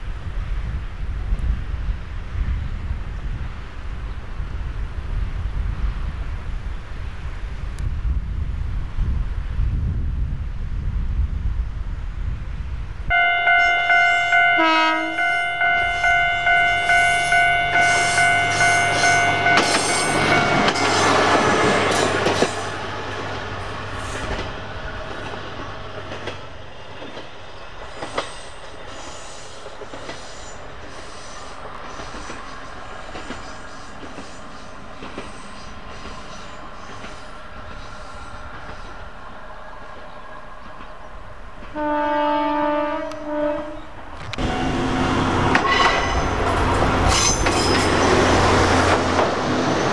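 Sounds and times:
distant train with ticks: 0.0s - 49.9s
railcar passing: 0.0s - 49.9s
level-crossing alarm ringing: 13.1s - 21.3s.

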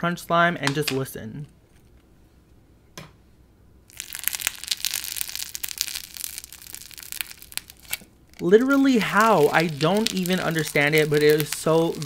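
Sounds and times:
slime crackling crunches: 3.9s - 12.0s.

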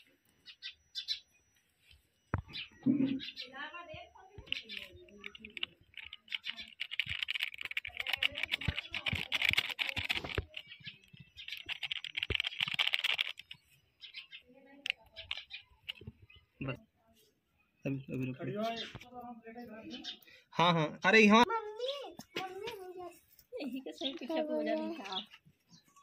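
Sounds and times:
plastic packet crinkling: 4.7s - 13.6s.

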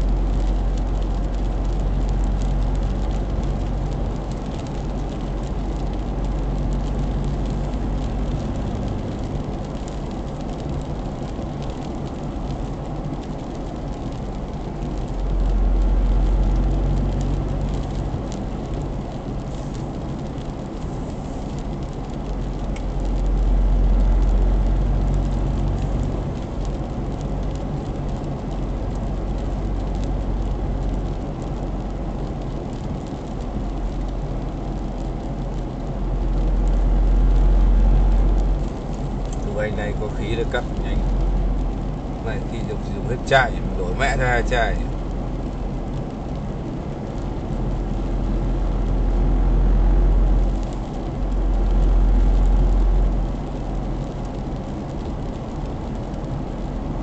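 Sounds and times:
car cabin road noise: 0.0s - 57.0s.

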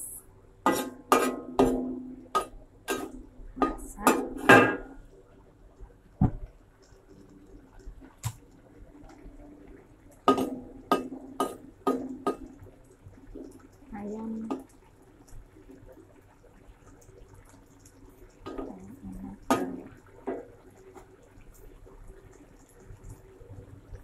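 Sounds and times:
metal spatula scraping a wok: 0.7s - 1.8s.

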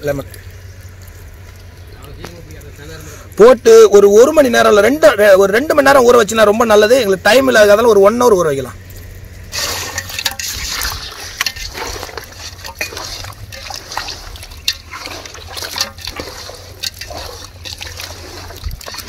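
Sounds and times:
hand squelching wet paste: 9.5s - 19.0s
liquid pouring: 9.5s - 19.0s
wet slaps and sloshes: 9.6s - 19.0s.

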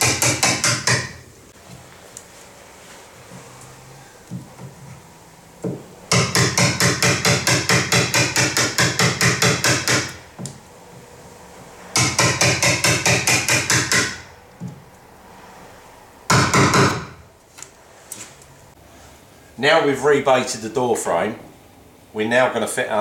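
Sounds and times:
hammer striking wood chisel: 0.0s - 1.3s, 5.6s - 10.6s, 11.9s - 14.8s, 16.3s - 17.2s.

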